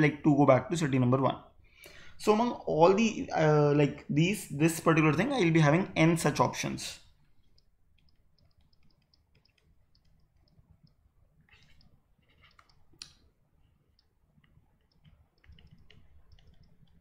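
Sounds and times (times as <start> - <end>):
stylus tapping on pen tablet: 14.0 - 17.0.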